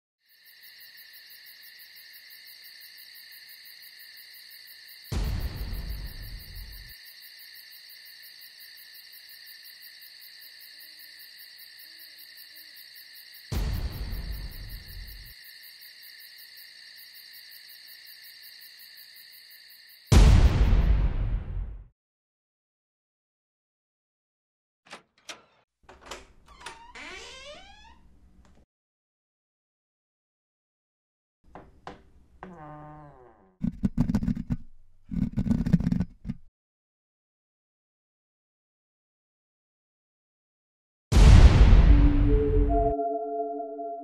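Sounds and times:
crickets chirping: 0:00.2 - 0:20.1
deep boom: 0:05.2 - 0:06.8, 0:13.6 - 0:15.2, 0:20.1 - 0:21.9, 0:41.1 - 0:42.9.

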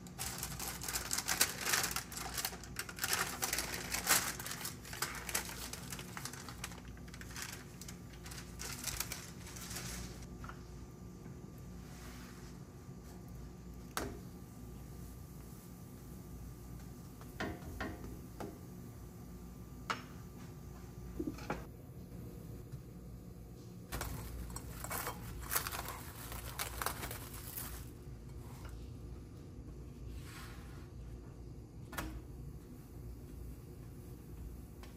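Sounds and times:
dough crackling on griddle: 0:00.0 - 0:10.4, 0:23.9 - 0:28.4
plastic cling wrap crinkling: 0:00.0 - 0:10.4, 0:23.9 - 0:28.0
parchment paper rustling: 0:00.0 - 0:10.6, 0:23.9 - 0:28.0.

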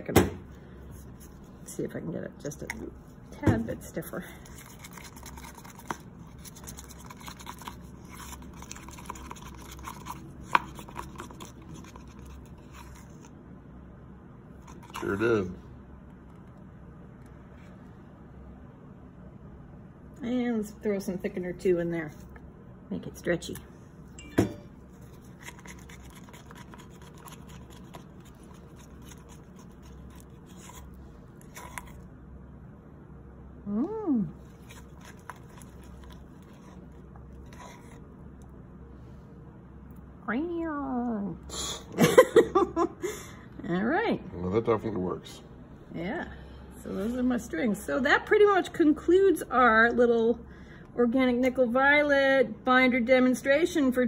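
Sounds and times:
stirring tool scraping paint in cup: 0:04.4 - 0:13.3, 0:24.9 - 0:32.0
palette knife scraping paint: 0:25.0 - 0:32.0.

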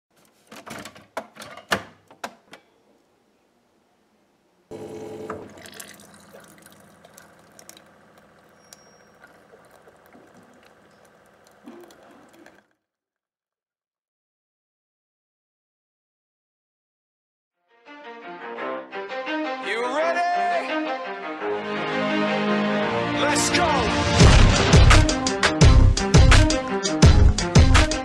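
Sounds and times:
pump humming: 0:04.7 - 0:12.7
hot water streaming into mug: 0:04.8 - 0:12.7.

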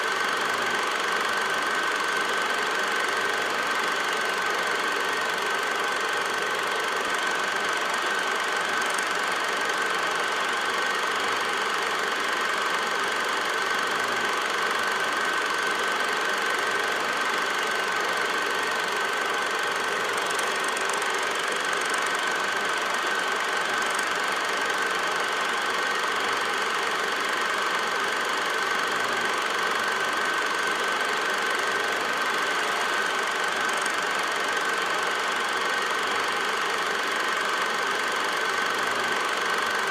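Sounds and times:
constant high whine: 0:00.0 - 0:39.7
film projector whirring: 0:00.0 - 0:39.9.

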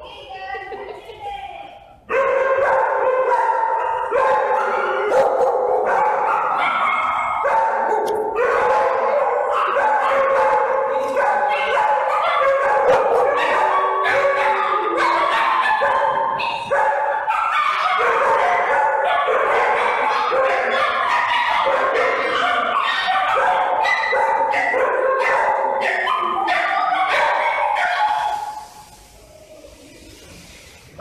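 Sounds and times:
small dogs barking and yipping: 0:02.0 - 0:29.0.

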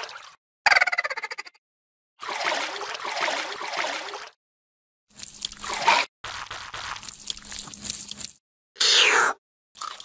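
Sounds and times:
water sloshing and trickling: 0:00.0 - 0:00.4, 0:02.2 - 0:04.4, 0:05.1 - 0:08.4, 0:09.8 - 0:10.0.

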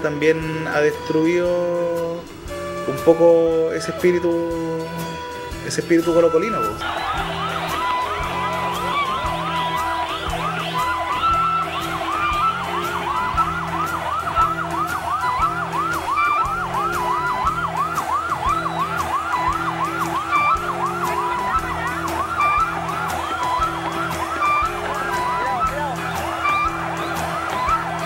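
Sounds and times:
music with beat and bass: 0:00.0 - 0:28.0
yelp siren: 0:06.0 - 0:28.0.

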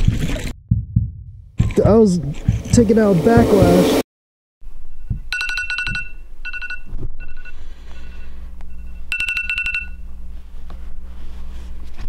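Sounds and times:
low hum: 0:00.0 - 0:04.0, 0:04.6 - 0:12.0
phone ringtone beeps: 0:05.3 - 0:10.0.

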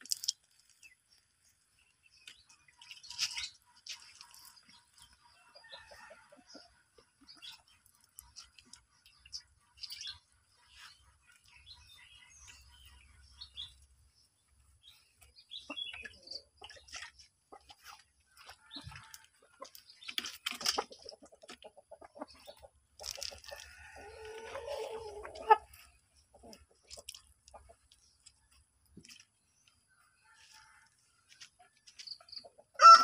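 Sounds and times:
rooster clucking: 0:20.6 - 0:27.8.

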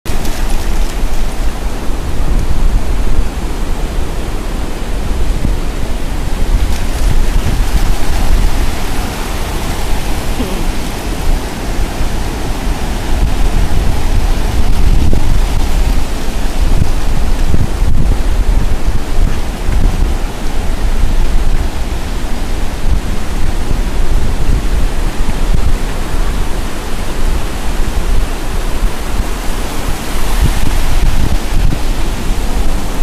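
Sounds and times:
ocean surf breaking: 0:00.1 - 0:21.1, 0:25.8 - 0:33.0
wind buffeting microphone: 0:00.1 - 0:33.0.

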